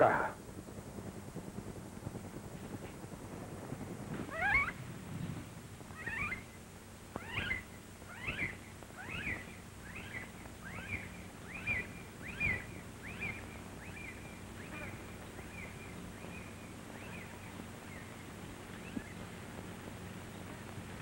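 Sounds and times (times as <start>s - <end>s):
film soundtrack hum and hiss: 0.0s - 21.0s
animal giving high cries: 4.3s - 4.8s, 6.0s - 6.4s.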